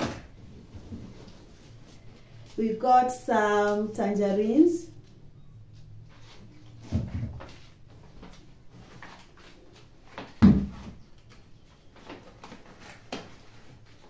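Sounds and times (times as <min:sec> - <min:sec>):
items rustling and knocking: 0:00.0 - 0:02.6, 0:05.7 - 0:14.0.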